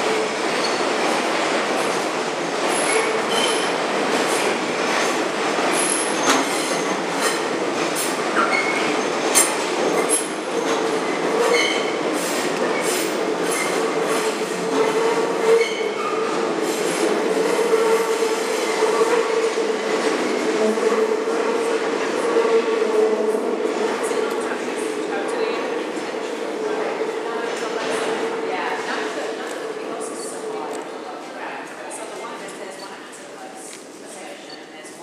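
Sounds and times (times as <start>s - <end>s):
subway train running: 0.0s - 35.0s
train wheels squealing on rails: 0.5s - 1.0s, 2.7s - 3.8s, 5.0s - 19.5s, 34.4s - 34.8s.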